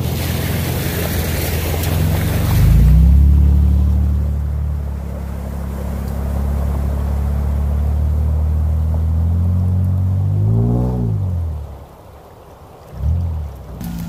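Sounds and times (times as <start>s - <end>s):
pickup truck engine revving: 13.0s - 14.0s.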